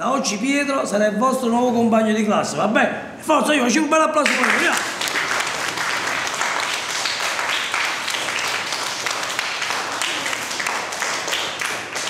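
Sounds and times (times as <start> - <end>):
children applauding: 4.2 - 12.0.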